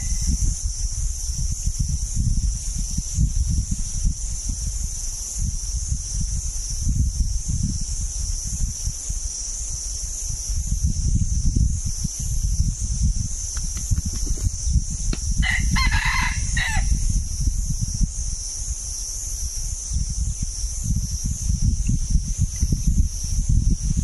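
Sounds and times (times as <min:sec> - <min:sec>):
high insect buzz: 0:00.0 - 0:24.0
rooster crowing: 0:15.4 - 0:17.0.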